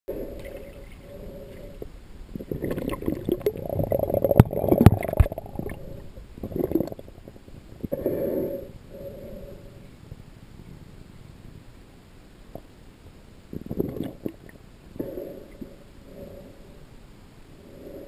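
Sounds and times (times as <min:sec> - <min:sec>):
muffled underwater gurgling: 0:00.1 - 0:08.4, 0:13.5 - 0:16.5.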